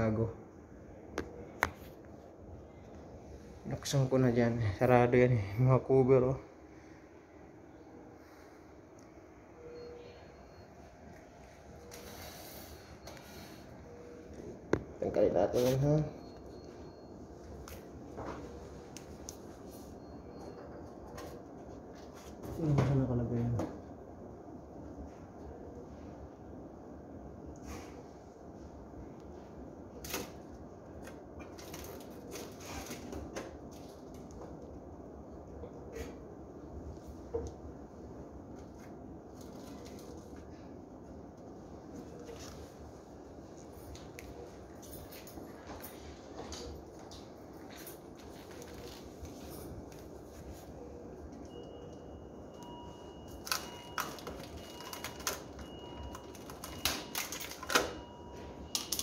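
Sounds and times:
faint high tone: 9.4 - 17.1.

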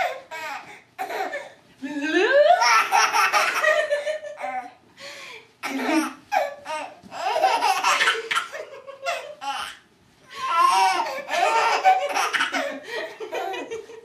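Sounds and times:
baby laughing: 0.0 - 1.5, 2.6 - 4.7, 5.6 - 9.8, 10.4 - 13.8.

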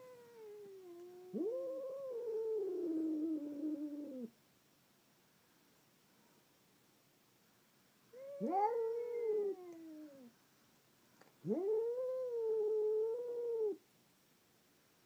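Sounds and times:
cats caterwauling: 0.0 - 4.3, 8.2 - 10.3, 11.4 - 13.8.

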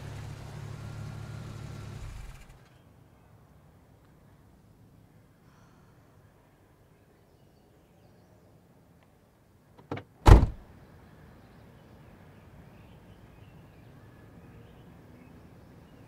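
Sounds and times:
faint outdoor background noise: 0.0 - 16.0
car door click: 9.8 - 10.6
car door slamming: 9.8 - 10.6.

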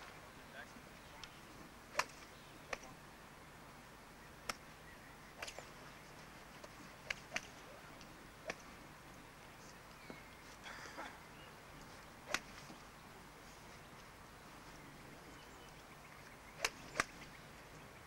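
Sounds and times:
faint steady hiss: 0.0 - 18.0
golf clubs striking balls: 1.2 - 3.0, 5.3 - 5.8, 6.6 - 10.3, 12.2 - 12.9, 16.5 - 17.5.

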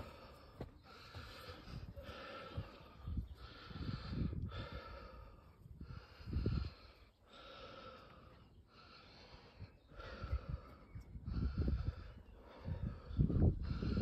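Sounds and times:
person breathing heavily: 0.0 - 14.0
wind rumble on microphone: 1.3 - 6.9, 9.6 - 14.0.

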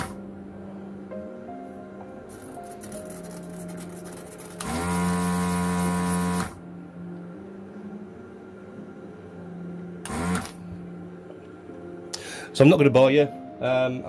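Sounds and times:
desoldering gun pump running: 4.4 - 6.5, 10.1 - 10.6.

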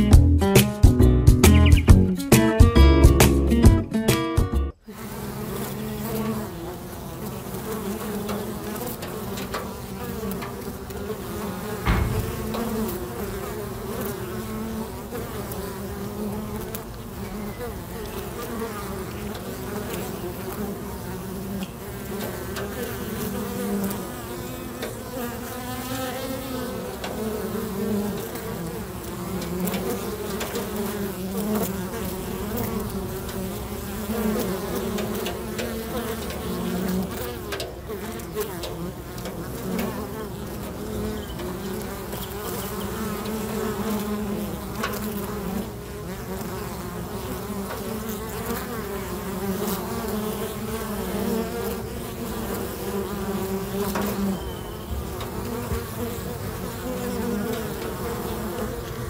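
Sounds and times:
bees buzzing: 0.0 - 59.0
thump: 11.8 - 13.5.

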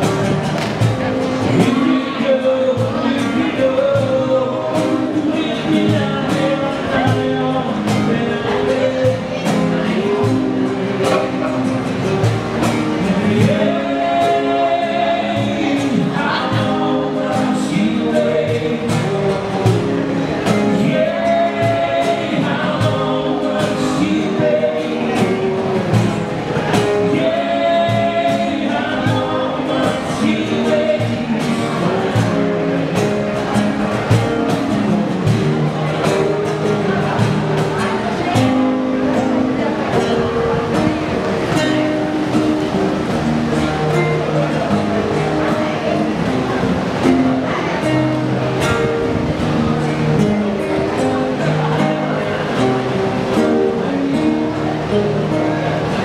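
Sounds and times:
live band music: 0.0 - 56.0
person singing: 1.4 - 33.5
steady drum beat: 2.6 - 38.7.

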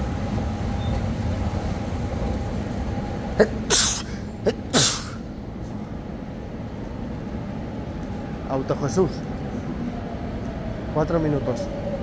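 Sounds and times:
steady machinery hum: 0.0 - 12.0
man sneezing: 3.4 - 5.2.

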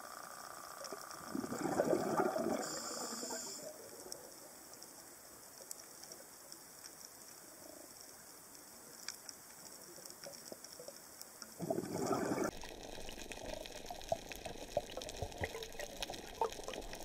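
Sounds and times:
steady hiss: 0.0 - 17.0
diver's bubbles gurgling: 1.2 - 3.5, 11.6 - 17.0
underwater clicks: 9.0 - 17.0.

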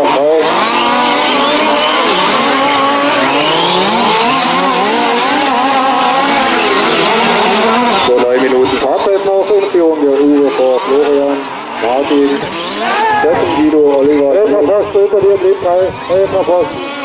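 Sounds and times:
rc car engines revving: 0.0 - 17.0.

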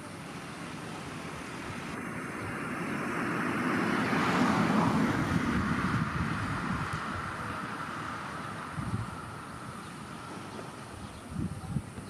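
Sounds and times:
turboprop airliner droning: 0.0 - 12.0.

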